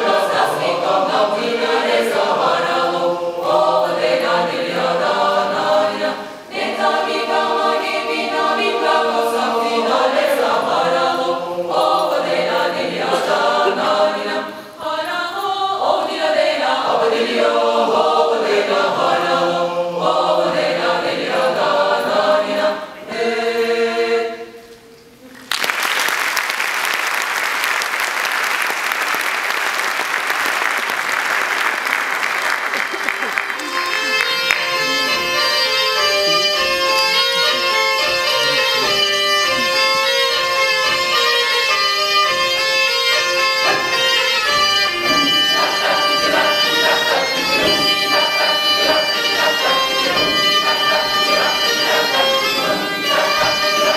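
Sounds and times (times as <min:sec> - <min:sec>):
mixed choir singing: 0:00.0 - 0:24.8, 0:43.5 - 0:53.9
audience applause: 0:25.4 - 0:34.7.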